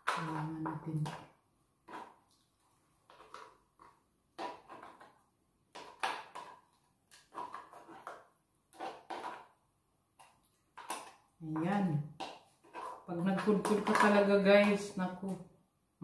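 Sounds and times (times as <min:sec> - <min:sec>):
metal spoon scraping crab shell: 0:04.4 - 0:05.1, 0:05.7 - 0:09.6, 0:12.2 - 0:14.2.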